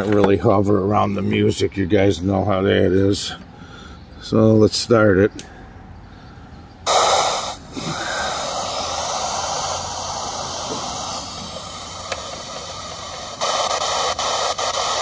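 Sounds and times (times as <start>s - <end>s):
radio static hiss: 6.9s - 15.0s.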